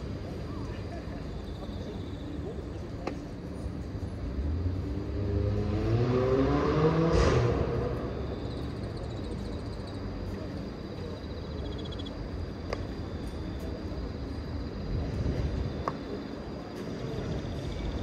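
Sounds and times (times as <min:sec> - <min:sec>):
vehicle engine accelerating: 0:04.3 - 0:08.8.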